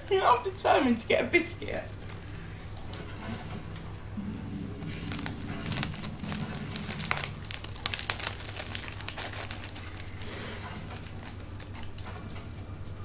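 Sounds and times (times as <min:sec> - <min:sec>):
plastic wrapper crinkling: 0:04.6 - 0:12.0.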